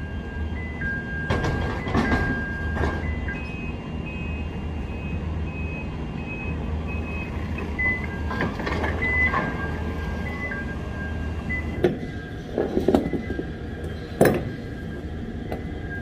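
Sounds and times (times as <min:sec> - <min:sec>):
reversing alarm beeping: 0:00.0 - 0:16.0
clunks: 0:01.2 - 0:03.6, 0:07.5 - 0:10.2, 0:11.6 - 0:14.8.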